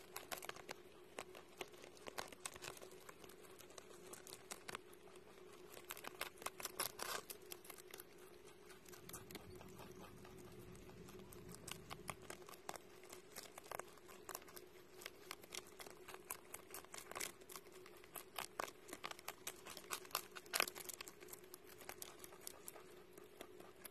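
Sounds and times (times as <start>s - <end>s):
rabbit chewing lettuce: 0.0s - 23.9s.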